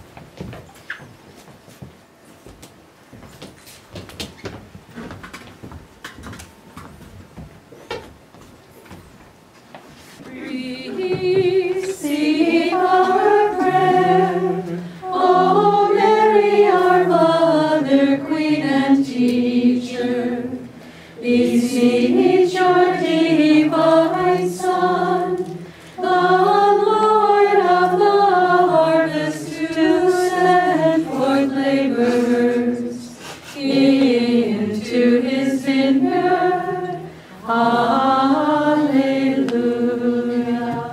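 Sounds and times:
group singing a hymn: 10.2 - 40.9.

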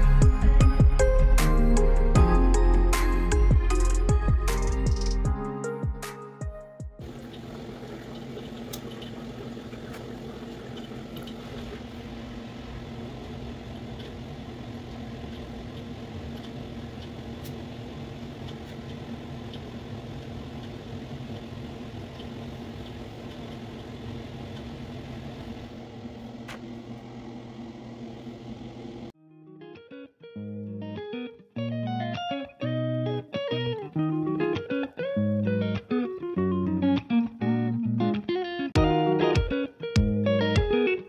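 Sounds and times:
extractor fan humming: 7.0 - 29.2.

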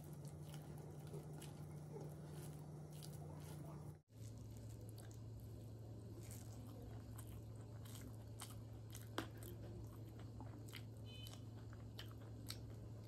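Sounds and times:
steady low hum: 0.0 - 13.0
person chewing with mouth clicks: 6.3 - 13.0.

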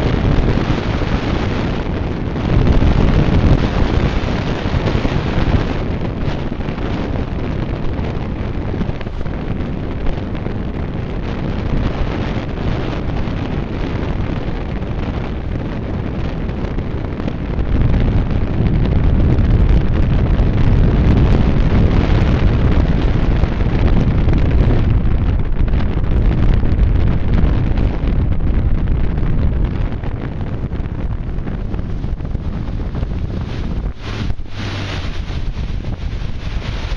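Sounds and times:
wind buffeting microphone: 0.0 - 36.9
water rushing past boat: 30.8 - 36.9.

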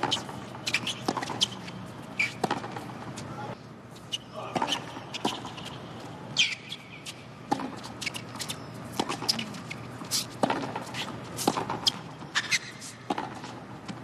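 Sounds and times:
tennis ball strikes: 0.0 - 1.6, 2.2 - 2.8, 7.5 - 7.9, 10.4 - 13.6
sneakers squeaking on court: 0.0 - 3.3, 4.0 - 13.5.

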